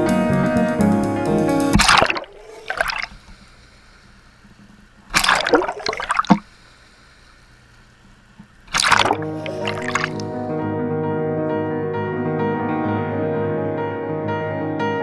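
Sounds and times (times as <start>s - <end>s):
water splashing and gurgling: 1.8s - 3.8s, 5.1s - 6.6s, 8.7s - 10.4s.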